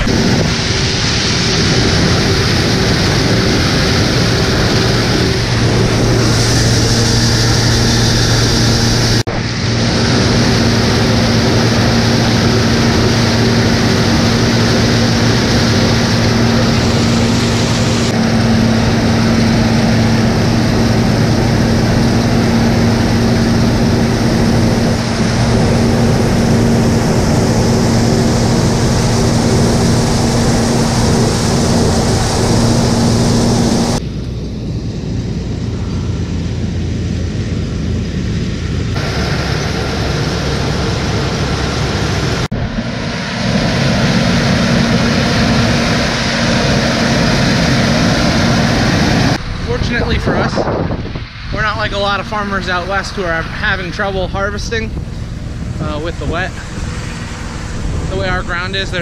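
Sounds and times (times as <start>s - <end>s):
combine harvester running: 0.0s - 59.0s.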